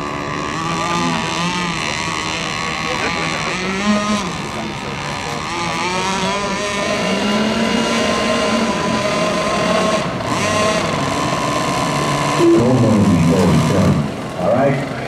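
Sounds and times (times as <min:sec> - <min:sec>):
high-pitched model boat motors whining: 0:00.0 - 0:15.0.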